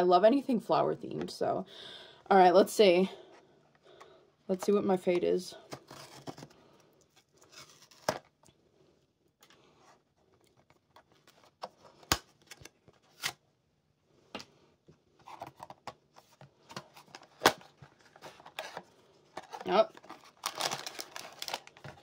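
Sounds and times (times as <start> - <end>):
card scraping and rustling: 5.6 - 8.4, 15.2 - 22.0.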